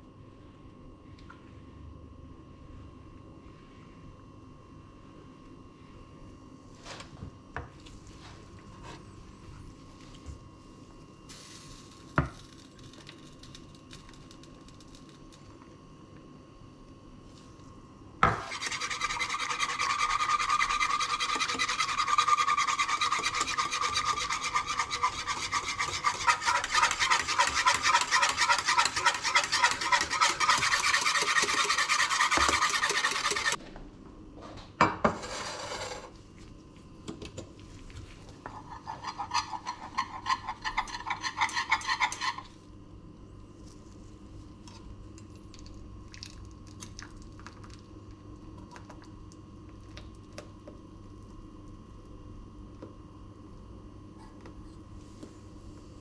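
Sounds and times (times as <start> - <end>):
wire whisk scraping metal saucepan: 18.4 - 33.6, 38.6 - 42.4.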